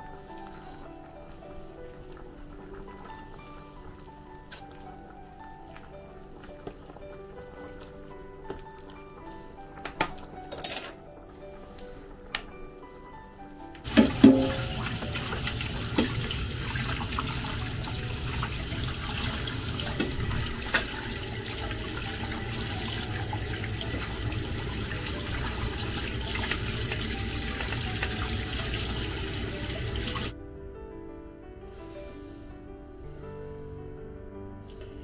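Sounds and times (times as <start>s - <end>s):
dishes clinking: 10.0s - 11.0s, 13.8s - 14.9s
tap running into sink: 13.8s - 30.3s.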